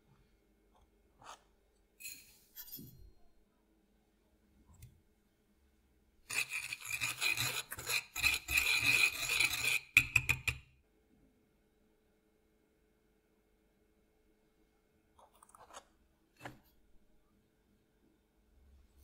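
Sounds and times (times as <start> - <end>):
whisk scraping breadcrumbs on plate: 6.3 - 10.5.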